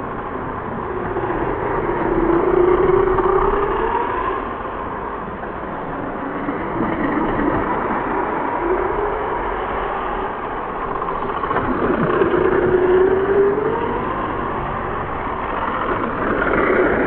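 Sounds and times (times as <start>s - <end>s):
steady rushing noise: 0.0s - 17.0s.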